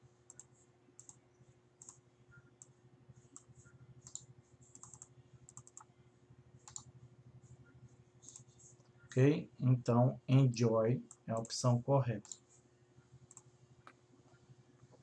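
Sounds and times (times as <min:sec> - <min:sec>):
faint steady hum: 0:00.0 - 0:15.0
computer mouse clicks: 0:00.3 - 0:01.2, 0:01.8 - 0:02.0, 0:02.6 - 0:05.9, 0:06.6 - 0:06.9, 0:08.2 - 0:08.5, 0:13.3 - 0:14.0.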